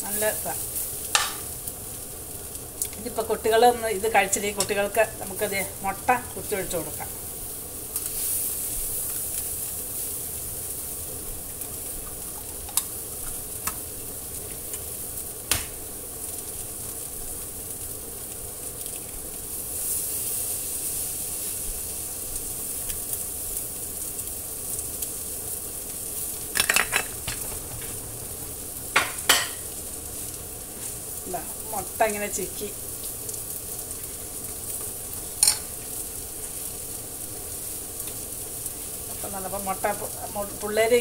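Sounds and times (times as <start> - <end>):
egg sizzling in a skillet: 0.0 - 41.0
clicks and knocks on pan: 1.1 - 1.4, 29.0 - 29.6.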